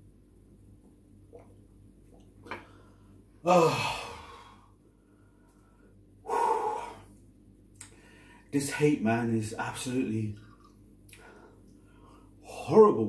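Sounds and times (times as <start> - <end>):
man sighing heavily: 3.4 - 4.7, 6.3 - 7.1.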